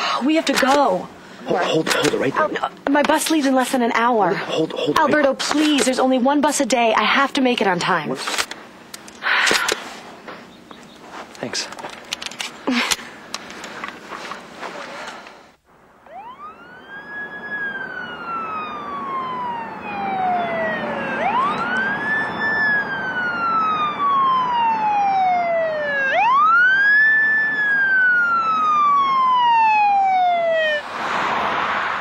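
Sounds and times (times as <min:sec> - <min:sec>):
police siren wailing: 0:15.9 - 0:30.9.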